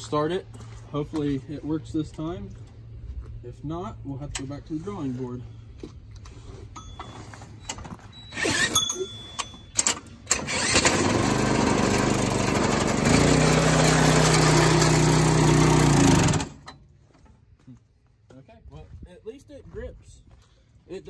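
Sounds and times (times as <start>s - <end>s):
small gas engine running: 10.3s - 16.7s.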